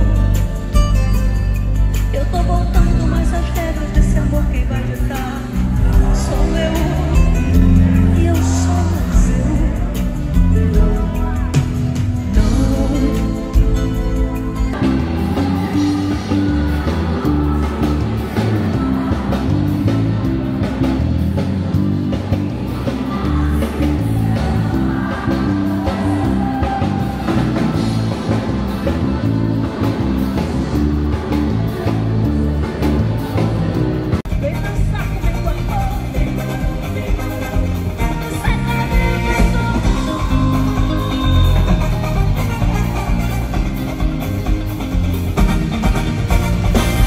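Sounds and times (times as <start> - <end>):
live pop band music: 0.0 - 47.0
woman singing: 2.1 - 19.8, 36.3 - 42.4.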